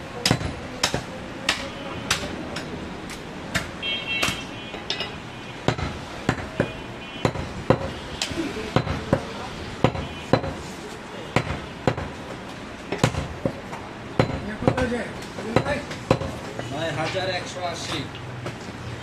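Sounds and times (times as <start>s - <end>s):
cleaver chopping meat: 0.2s - 4.5s, 5.7s - 8.0s, 8.8s - 10.6s, 11.4s - 12.2s, 13.0s - 13.6s.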